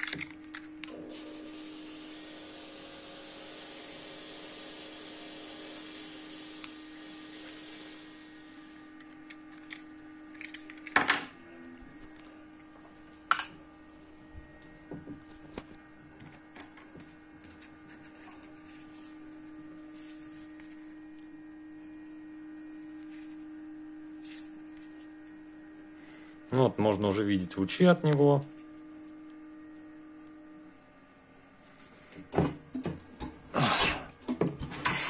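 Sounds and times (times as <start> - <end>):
hiss: 1.0 - 8.8.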